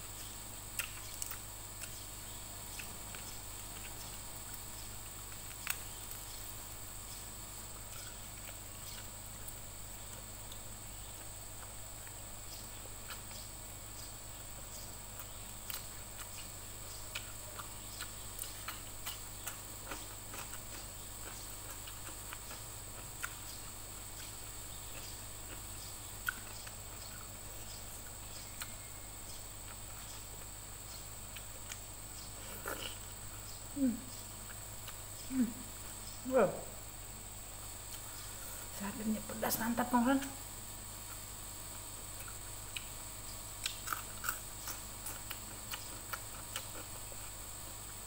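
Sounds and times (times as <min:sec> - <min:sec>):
steady background hiss: 0:00.0 - 0:48.0
chewing and smacking: 0:00.7 - 0:07.2, 0:07.8 - 0:13.6, 0:14.8 - 0:33.6, 0:41.0 - 0:43.0, 0:43.6 - 0:48.0.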